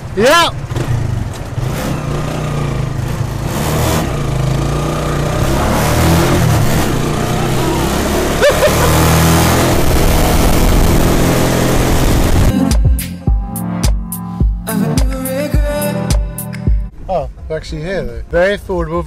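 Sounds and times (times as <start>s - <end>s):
wind: 0.0s - 12.5s, 15.8s - 19.0s
motorcycle engine accelerating: 0.0s - 14.6s
road noise: 0.0s - 19.0s.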